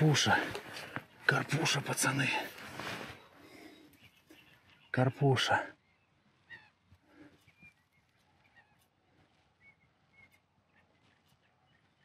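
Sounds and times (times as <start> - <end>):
faint high bird chirps: 3.1 - 12.0.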